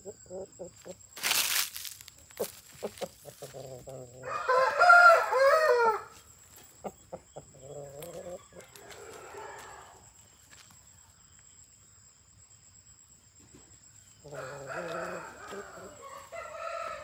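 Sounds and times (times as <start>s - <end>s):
faint rooster crowing: 4.2s - 6.1s, 7.9s - 10.2s, 14.3s - 17.0s.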